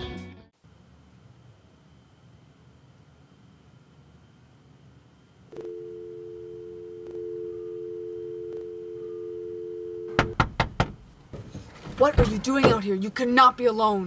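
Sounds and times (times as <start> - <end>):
telephone dial tone: 5.5 - 10.2
fist knocking on car window: 10.2 - 11.0.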